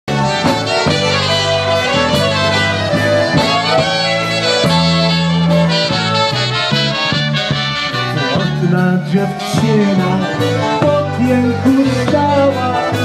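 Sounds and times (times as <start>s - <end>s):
live band playing a waltz: 0.1s - 13.0s.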